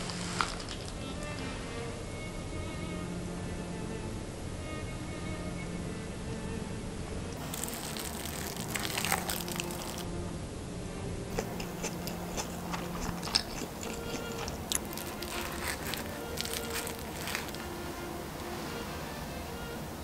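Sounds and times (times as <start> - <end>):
crunchy chewing: 0.0 - 1.0, 7.4 - 10.1, 11.3 - 18.4.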